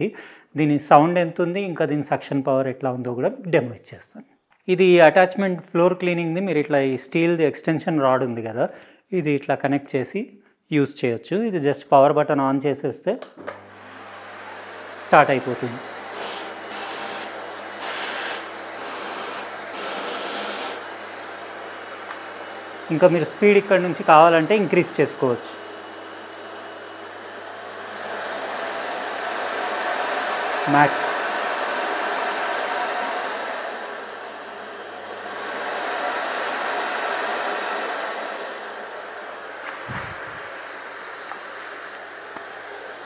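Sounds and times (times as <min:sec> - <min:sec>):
vacuum cleaner running: 0:13.4 - 0:43.0.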